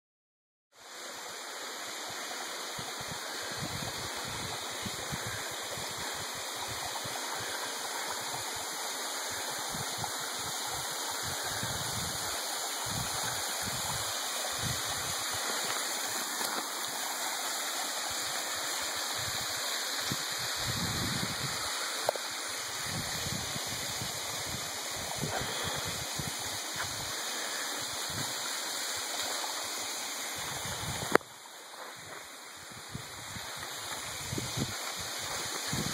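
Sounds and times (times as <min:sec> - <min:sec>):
creek rushing over rocks: 0:00.8 - 0:35.9
wind rumble on microphone: 0:20.1 - 0:21.6, 0:22.8 - 0:27.1, 0:30.4 - 0:31.2, 0:32.0 - 0:35.9.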